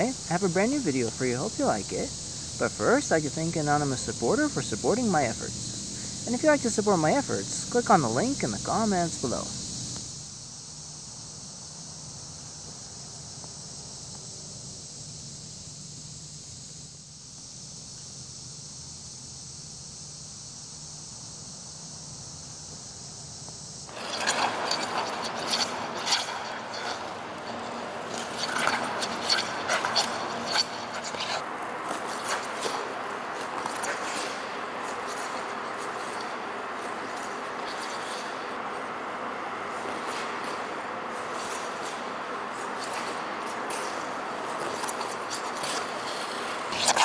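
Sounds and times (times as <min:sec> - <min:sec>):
insect chorus: 0:00.0 - 0:47.0
skate blades scraping ice: 0:23.9 - 0:47.0.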